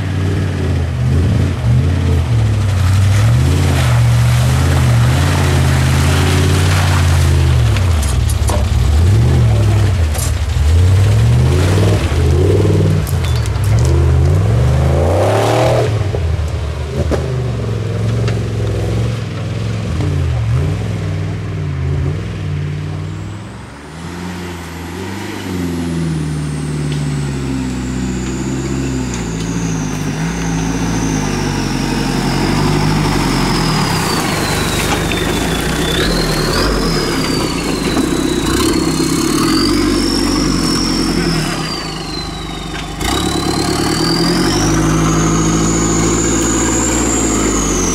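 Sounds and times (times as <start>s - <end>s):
off-road engines revving: 0.0s - 47.9s.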